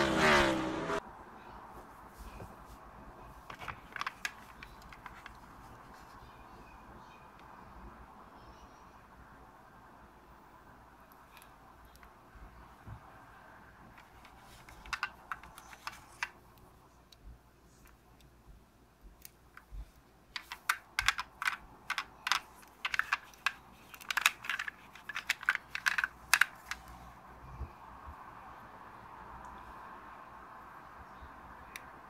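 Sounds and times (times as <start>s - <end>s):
metal toy car clicking: 14.0s - 16.4s, 20.3s - 26.9s.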